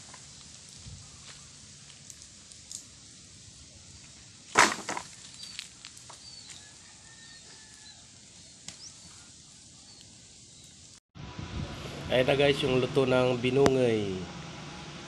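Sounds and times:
wood fire crackling: 0.0 - 6.8.

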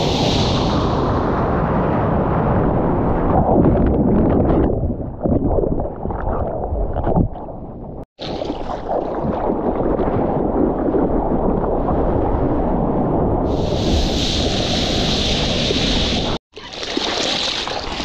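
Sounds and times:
muffled underwater wave churning: 8.1 - 18.0
seawater splashing around surfboard: 15.4 - 18.0.

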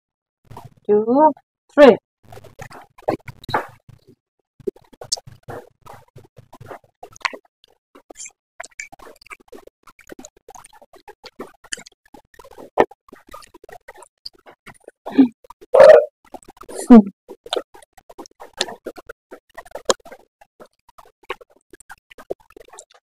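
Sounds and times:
person slurping and chewing noodles: 2.3 - 23.0.

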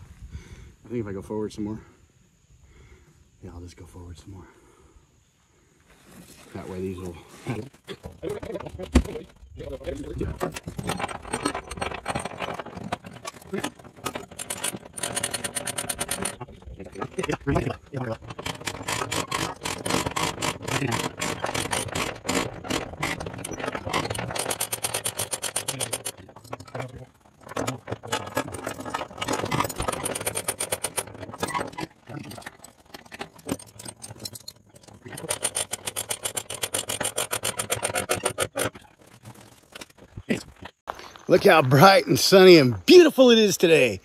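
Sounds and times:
ratchet clicking: 14.0 - 16.4, 18.2 - 26.5, 33.4 - 38.7.

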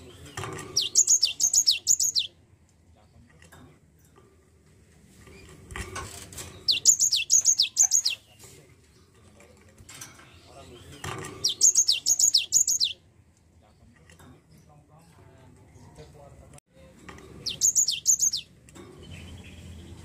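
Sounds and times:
bird singing sharp whistled notes: 17.5 - 18.5.

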